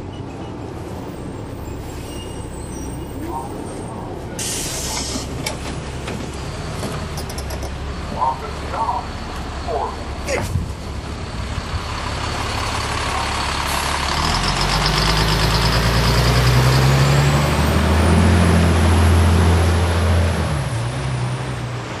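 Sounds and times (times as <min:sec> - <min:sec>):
bus diesel engine accelerating: 0:00.0 - 0:22.0.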